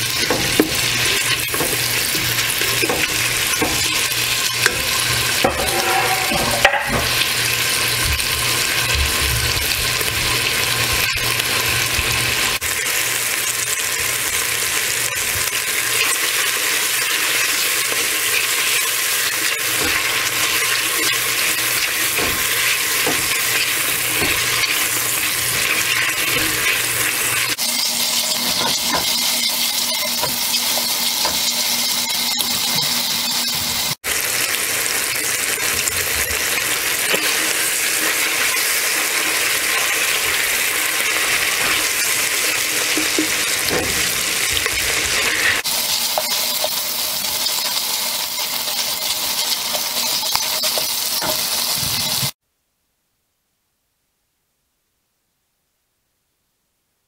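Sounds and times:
spatula stirring and scraping: 0.0s - 7.3s, 17.8s - 34.0s, 35.7s - 52.3s
bacon sizzling in a pot: 0.0s - 52.4s.

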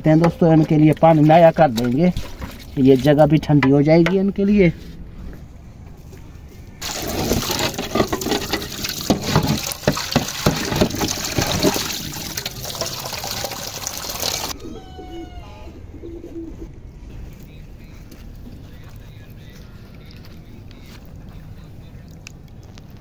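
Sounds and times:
water gushing into plastic tub: 6.8s - 14.6s.

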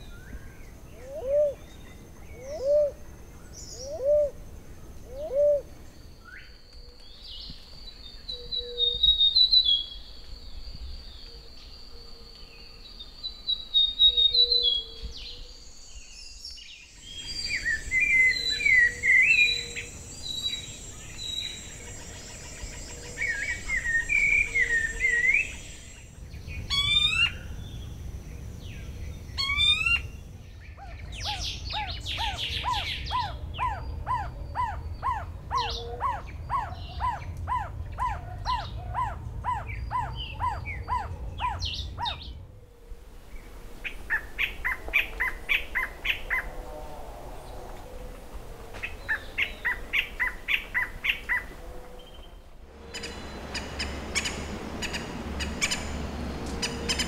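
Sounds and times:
bird rising sweeps: 43.8s - 57.0s
songbird warbling: 52.8s - 57.0s.

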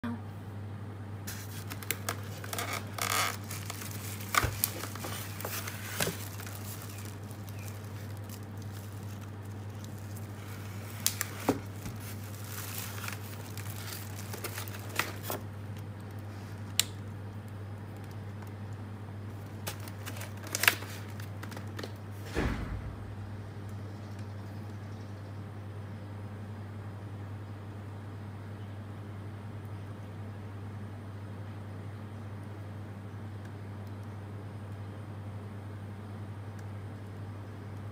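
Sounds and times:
steady low hum: 0.0s - 37.9s
plastic wrap and foam rustling: 1.3s - 17.0s, 19.3s - 22.5s.

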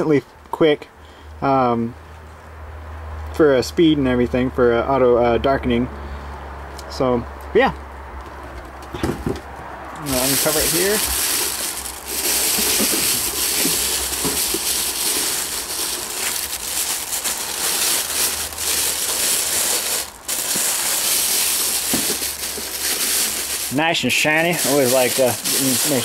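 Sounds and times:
plastic bag crinkling: 10.0s - 26.0s.

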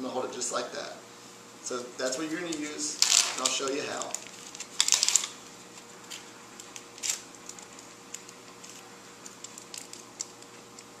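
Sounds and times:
faint steady hum: 0.0s - 11.0s
packet crinkling: 2.4s - 11.0s.

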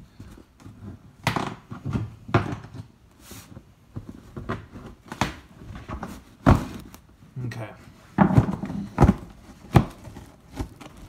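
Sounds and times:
cardboard scraping: 8.2s - 11.0s.

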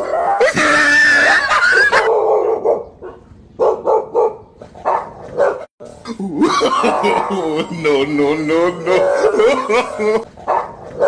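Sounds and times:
dog barking: 2.0s - 5.7s, 10.4s - 11.0s.

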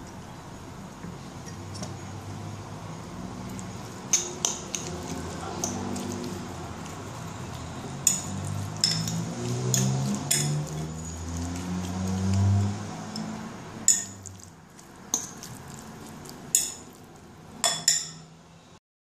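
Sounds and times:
fork clinking against salad bowl: 8.0s - 11.6s, 13.9s - 14.5s, 16.5s - 17.0s.

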